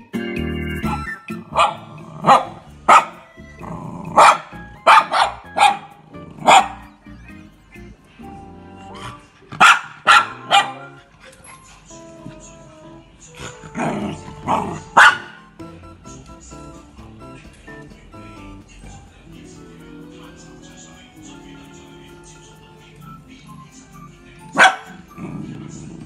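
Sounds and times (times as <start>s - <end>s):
music: 0.0s - 26.0s
dog barking sharply: 1.5s - 3.2s, 4.2s - 6.8s, 9.6s - 10.9s, 14.5s - 15.4s, 24.6s - 25.0s.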